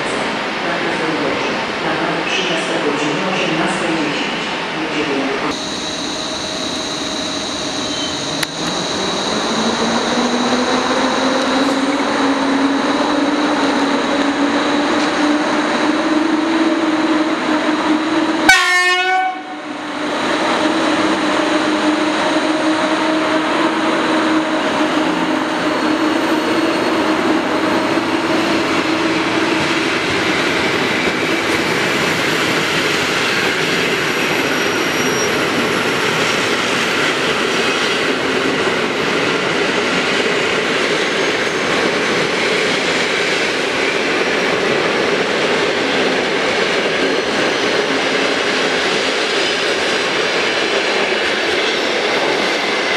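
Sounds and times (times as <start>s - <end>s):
electric locomotive whine: 3.7s - 52.9s
loud train horn blast: 18.4s - 19.6s.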